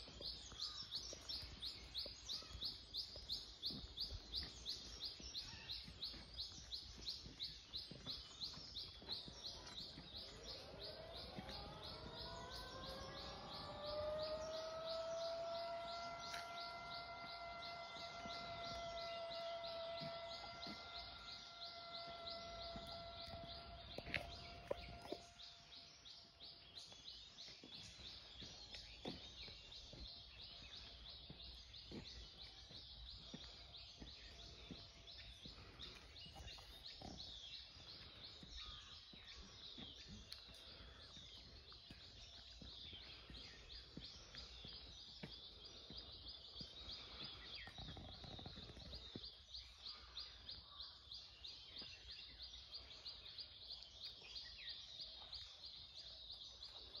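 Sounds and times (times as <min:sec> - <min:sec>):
high-pitched chirping chorus: 0:00.0 - 0:27.6.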